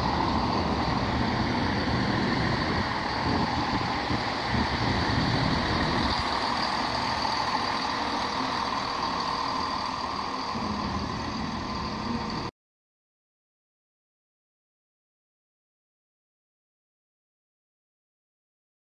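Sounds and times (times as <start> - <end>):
diesel train engine drone: 0.0 - 12.5
high whine: 0.0 - 12.5.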